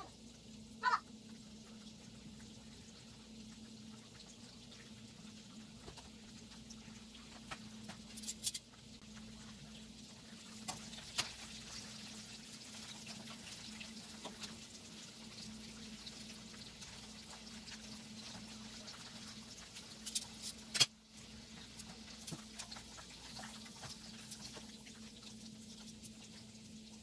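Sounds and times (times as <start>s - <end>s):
chicken sizzling in frying oil: 0.0s - 27.0s.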